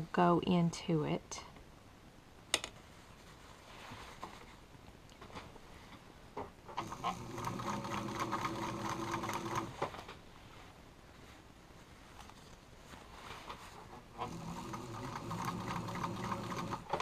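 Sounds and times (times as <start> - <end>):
fabric rustling: 2.8 - 4.7, 9.5 - 14.1
electric sewing machine stitching: 6.7 - 9.8, 14.2 - 17.0.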